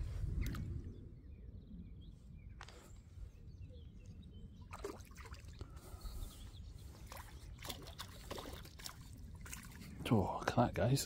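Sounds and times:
wind rumbling on microphone: 0.0s - 5.0s
faint bird chirps: 0.2s - 8.3s
small splash in water: 4.7s - 5.6s, 7.1s - 9.9s.

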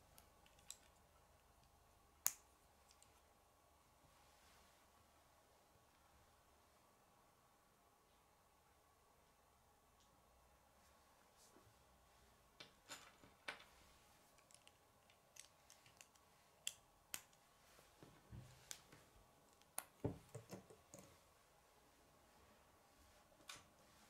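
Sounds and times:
plastic pieces clicking together: 14.4s - 17.4s.

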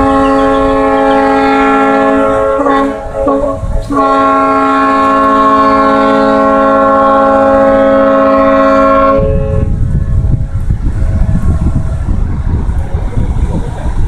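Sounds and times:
boat horn blast: 0.0s - 9.8s.

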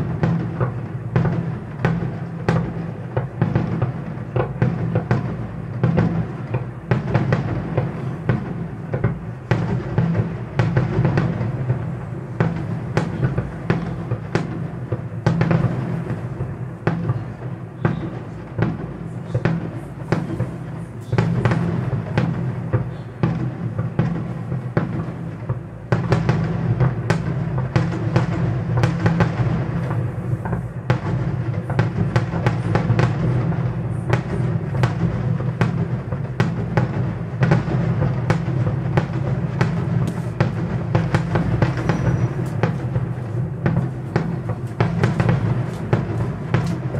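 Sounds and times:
fireworks bursting: 0.0s - 46.9s.

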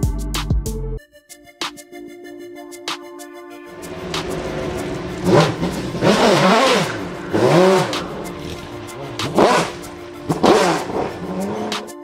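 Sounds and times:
background music: 0.0s - 12.0s
car engine revving: 3.8s - 12.0s.

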